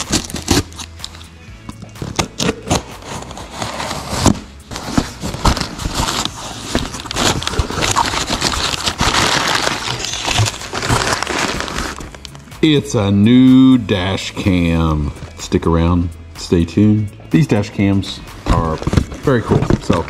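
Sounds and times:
cardboard and tape scraping: 0.0 - 1.2, 2.0 - 12.2
crumpled packing paper rustling: 2.1 - 12.3, 18.5 - 20.0.

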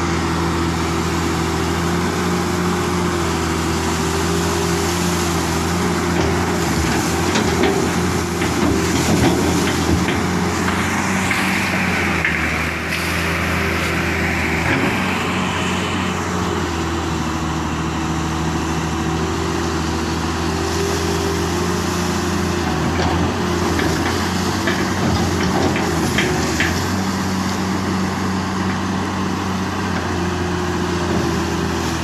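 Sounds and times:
excavator diesel engine running: 0.0 - 32.0.

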